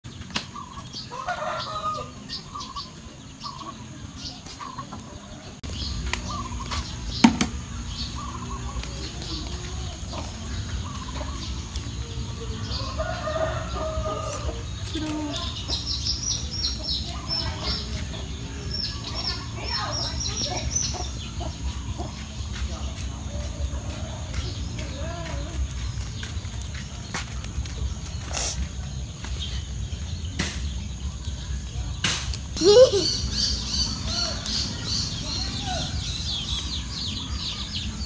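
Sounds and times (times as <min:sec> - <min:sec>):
chickens clucking: 0:00.2 - 0:38.0
sharp knock: 0:07.2 - 0:07.6.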